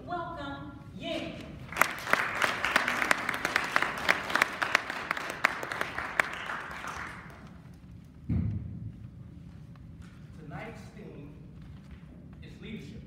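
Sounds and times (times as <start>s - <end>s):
small audience clapping: 1.6s - 7.8s.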